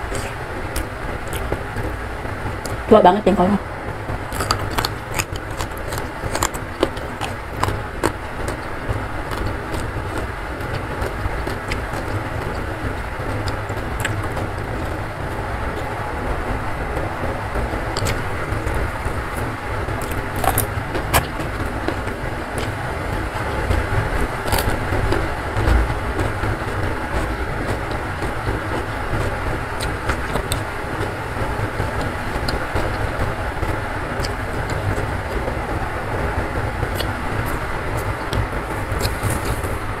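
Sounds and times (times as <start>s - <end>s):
crunching while eating: 0.0s - 1.6s, 4.3s - 12.7s, 18.0s - 18.3s, 19.3s - 22.0s, 24.2s - 25.9s, 27.1s - 30.7s, 37.0s - 39.8s
heavy rain: 7.4s - 40.0s.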